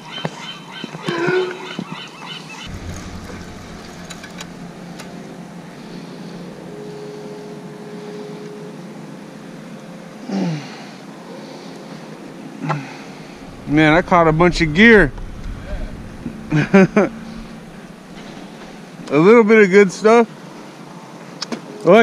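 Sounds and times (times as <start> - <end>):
boat motor drone: 2.7 - 10.2, 11.5 - 19.2.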